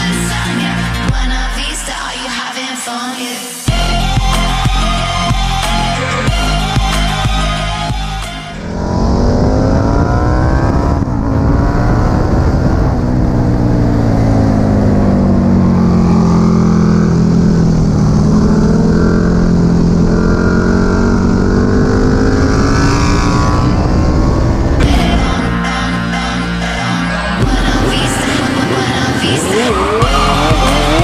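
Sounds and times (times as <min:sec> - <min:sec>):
motorcycle engine accelerating: 0:06.2 - 0:31.0.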